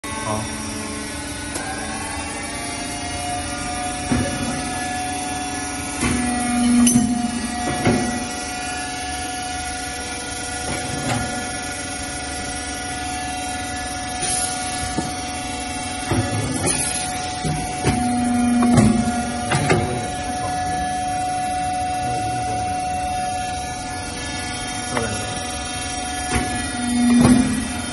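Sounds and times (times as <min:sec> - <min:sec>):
press motor humming: 0:00.1 - 0:27.9
press head knocks and clunks: 0:16.0 - 0:20.0, 0:26.3 - 0:27.7.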